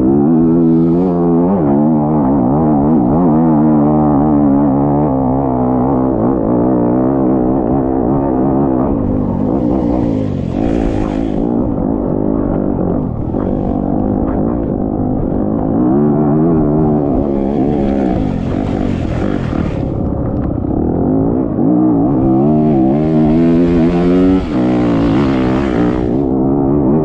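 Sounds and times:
engine revving under load: 0.0s - 27.0s.

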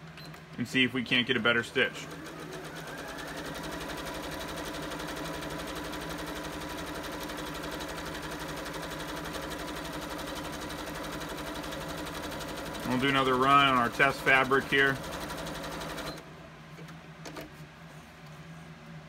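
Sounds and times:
sewing machine stitching: 1.7s - 16.2s.

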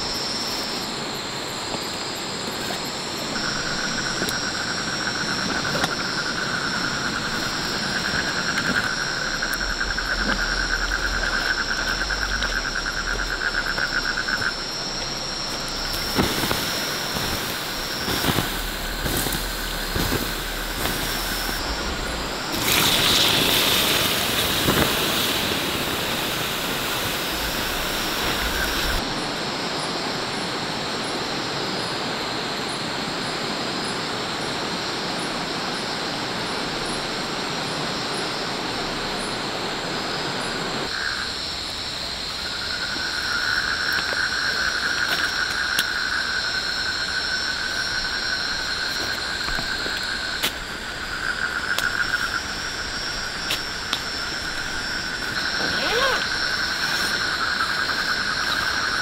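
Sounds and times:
insects trilling: 0.0s - 59.0s
rushing running water: 15.0s - 29.1s.

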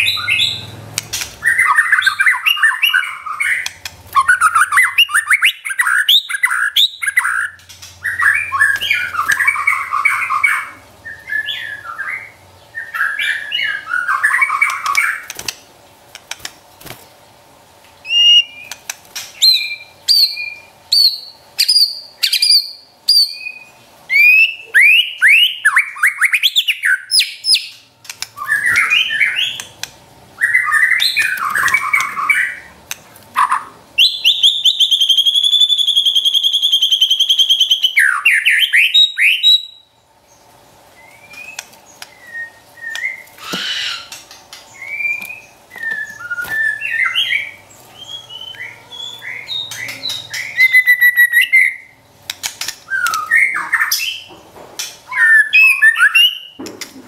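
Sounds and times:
songbird chattering and whistling: 1.4s - 15.3s, 18.0s - 29.8s, 33.4s - 40.0s, 55.1s - 56.6s.

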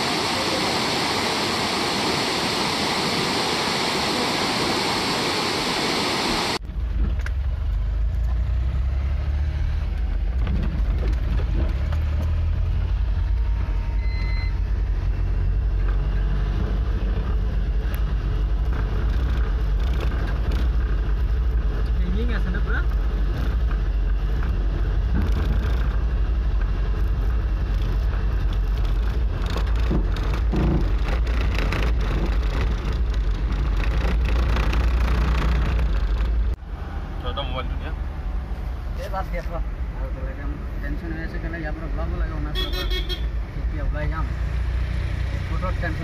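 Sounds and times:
waterfall rushing water: 0.0s - 6.6s
vehicle engine and road rumble: 0.0s - 46.0s.

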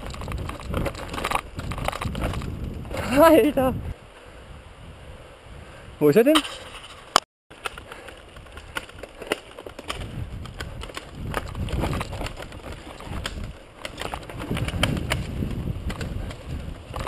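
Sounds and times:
bike rattling clicks and knocks: 0.0s - 3.0s, 6.4s - 17.0s
bike tyres rumbling over dirt: 0.0s - 3.4s, 7.5s - 17.0s.

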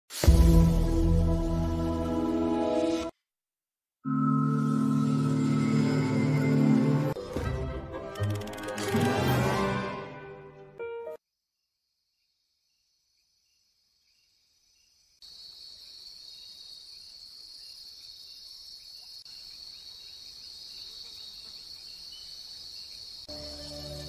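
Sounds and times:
music: 0.1s - 3.1s, 4.0s - 11.2s, 23.3s - 24.0s
crickets chirping: 11.3s - 24.0s.

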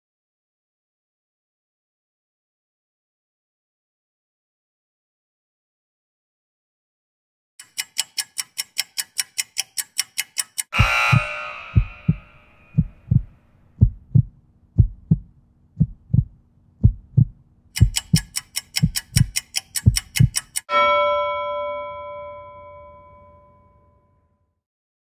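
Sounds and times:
loud ringing burst: 10.7s - 13.0s
heartbeat thumps: 10.8s - 20.4s.

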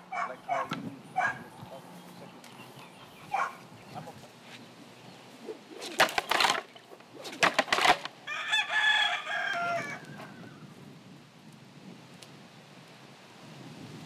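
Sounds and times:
loud swishing noises: 5.4s - 6.2s
rooster crowing: 8.2s - 10.7s.

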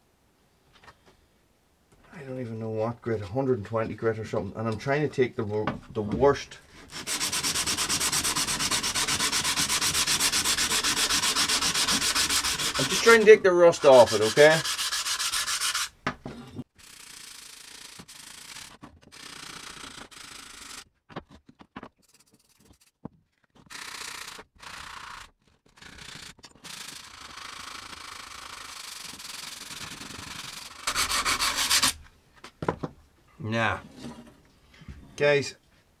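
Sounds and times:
sandpaper rubbing metal blade: 6.8s - 15.9s, 23.7s - 32.0s.

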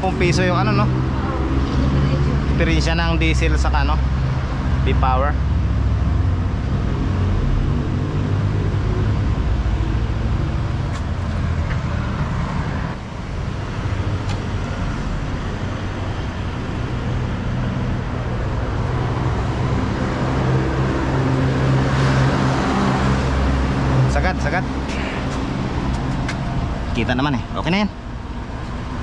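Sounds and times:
vehicle engine idling: 23.3s - 29.0s.

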